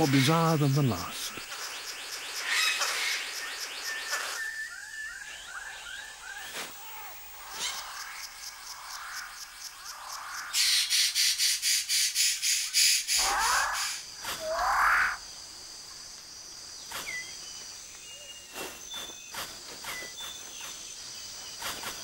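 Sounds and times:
birds whistling and chirping: 2.4 - 6.5, 16.8 - 20.8.

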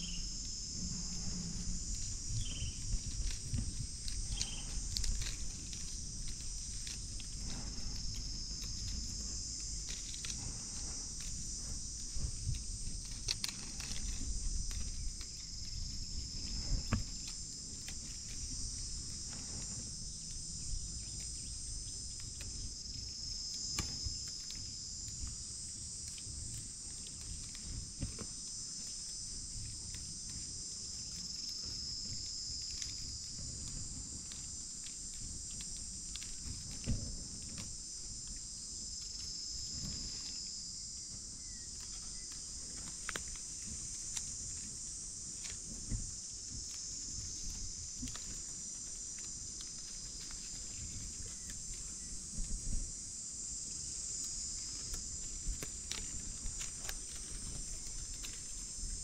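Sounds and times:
high-pitched insect chorus: 0.0 - 59.0
close crackles and clicks: 2.4 - 18.9, 41.8 - 44.7, 54.2 - 59.0.

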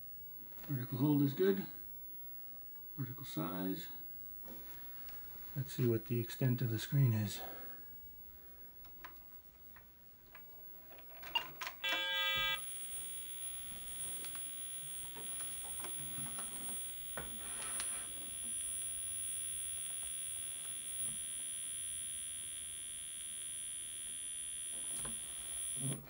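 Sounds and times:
computer short beep: 11.8 - 12.6
high-pitched whine with hiss: 11.8 - 26.0.

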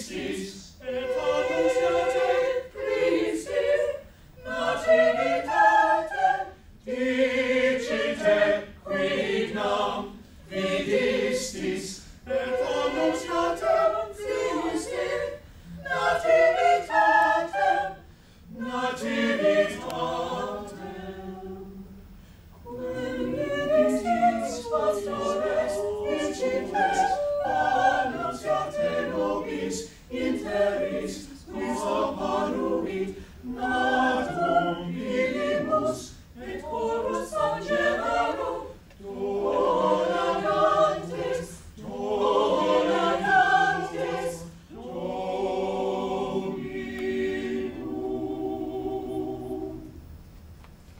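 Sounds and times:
choir singing a cappella: 0.0 - 50.1.

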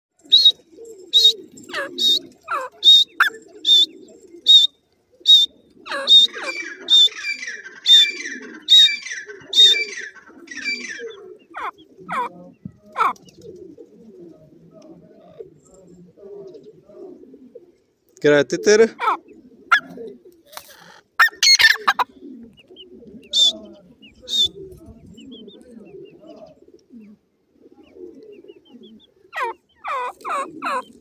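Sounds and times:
downward sweeping bird whistles: 0.3 - 0.6.

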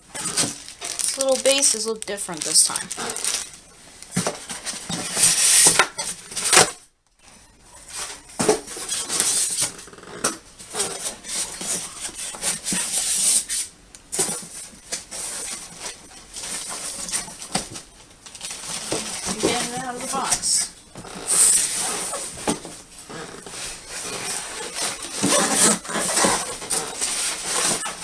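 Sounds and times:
packaging and plastic parts rustling: 0.1 - 6.8, 14.2 - 22.8, 23.5 - 28.0
microphone rubbing on fabric: 21.1 - 22.4.

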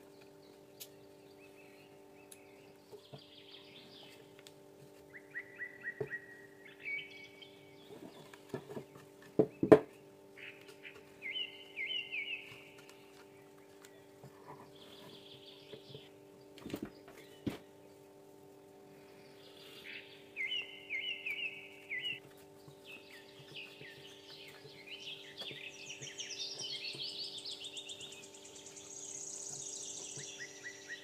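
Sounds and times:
steady hum: 0.0 - 31.0
small bird chirping: 10.4 - 17.5, 19.2 - 31.0.

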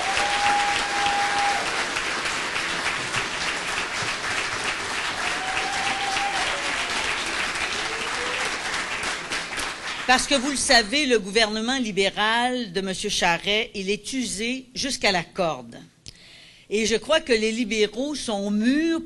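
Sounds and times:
long held cheers: 0.0 - 2.0, 5.1 - 8.8
audience applauding: 0.0 - 10.5.

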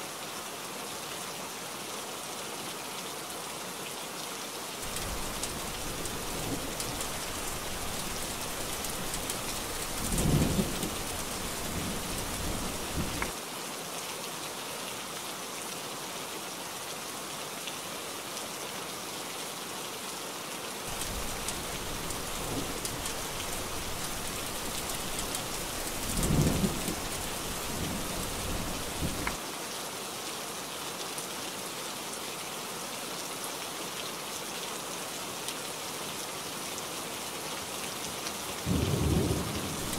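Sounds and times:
heavy rain falling: 4.8 - 13.5, 20.9 - 31.0, 37.2 - 39.9
rolls of thunder: 38.7 - 39.9.

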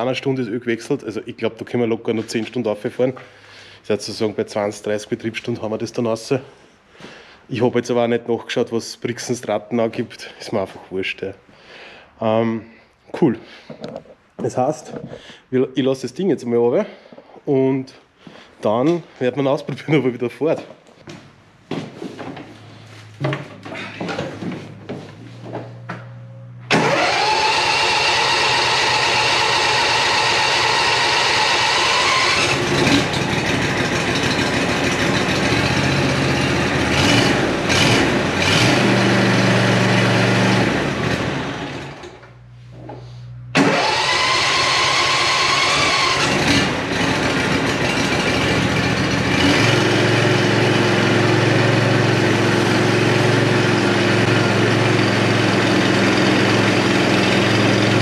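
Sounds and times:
ride-on mower engine running: 26.7 - 42.2, 43.6 - 58.0.

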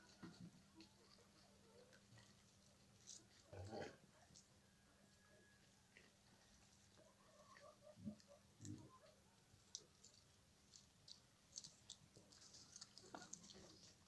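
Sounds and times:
dog chewing: 9.6 - 14.0.

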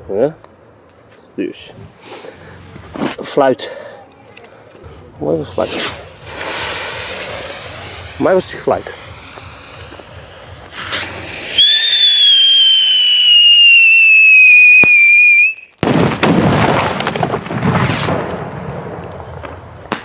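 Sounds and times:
firework crackling and hissing: 4.8 - 20.0
whistle firework: 5.7 - 15.8.

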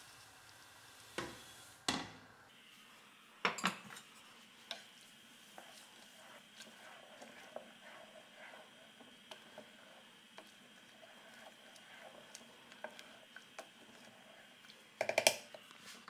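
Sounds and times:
spoon stirring wet mash: 3.9 - 16.0
spoon tapping metal pot: 15.0 - 15.4.

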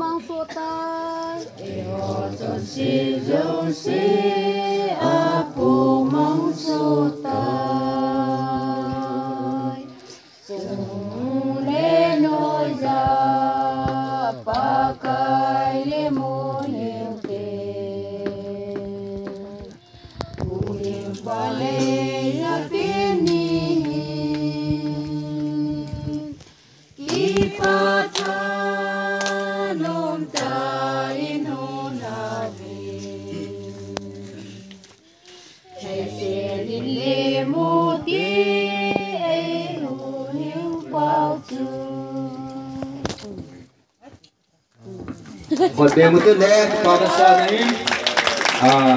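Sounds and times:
women singing together: 0.0 - 43.6.

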